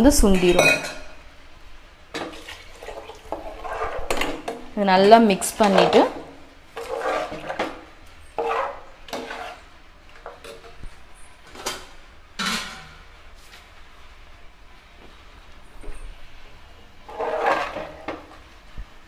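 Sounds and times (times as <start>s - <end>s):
ladle scraping and clinking a pot: 2.2s - 10.8s, 17.0s - 18.4s.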